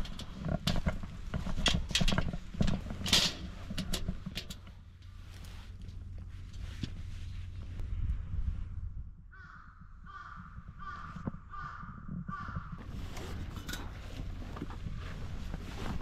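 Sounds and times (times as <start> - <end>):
low rumble: 0.0 - 16.0
crow cawing: 9.3 - 12.8.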